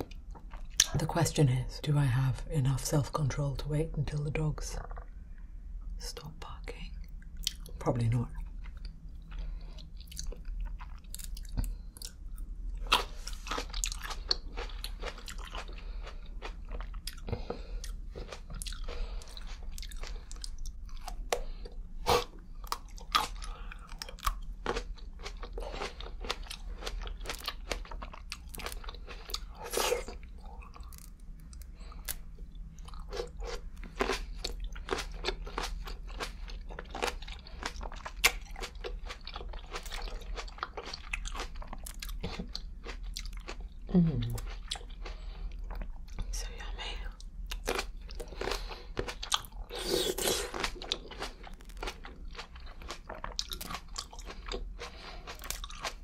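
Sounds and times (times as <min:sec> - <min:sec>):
chewing: 0:08.4 - 0:46.3, 0:47.1 - 0:56.0
grapes crunching: 0:47.5 - 0:56.0.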